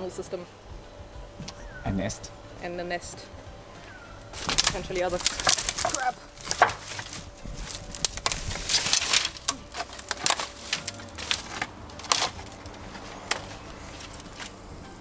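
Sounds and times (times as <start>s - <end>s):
twigs crackling and rustling: 3.8s - 14.7s
twigs snapping: 4.2s - 14.6s.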